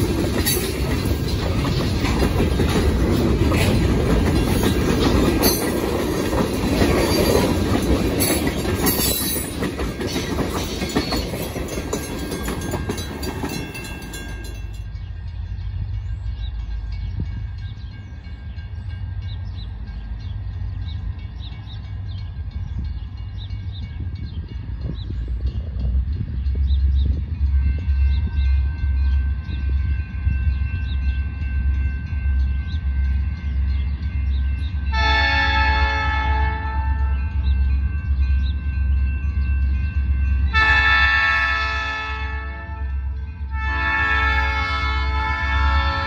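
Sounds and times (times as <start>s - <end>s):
wheels clicking over rail joints: 0.0s - 15.0s
freight train rolling past: 0.0s - 46.0s.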